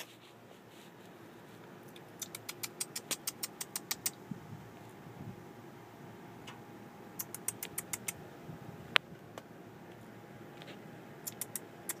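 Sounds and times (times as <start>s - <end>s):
person making kissy clicks: 1.9s - 4.2s, 7.2s - 8.2s, 11.2s - 12.0s.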